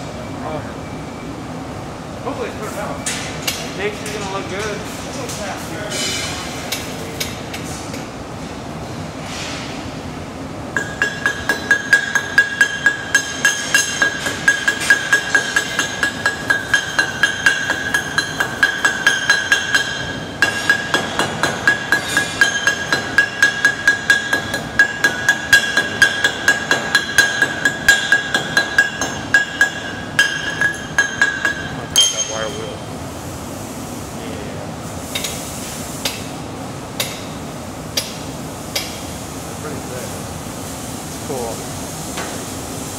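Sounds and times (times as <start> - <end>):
chipping hammer on ringing steel: 10.8 - 32.8.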